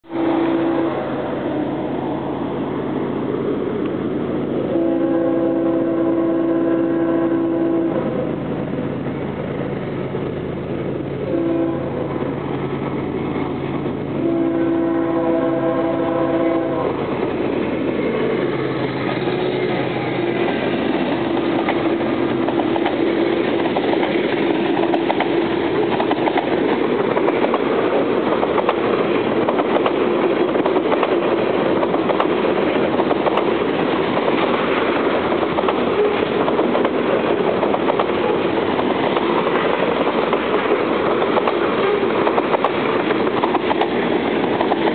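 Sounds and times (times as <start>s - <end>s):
locomotive horn blasts: 0.1s - 1.7s, 4.7s - 8.4s, 11.2s - 12.2s, 14.2s - 17.1s
train wheels clattering over rail joints: 17.0s - 44.9s.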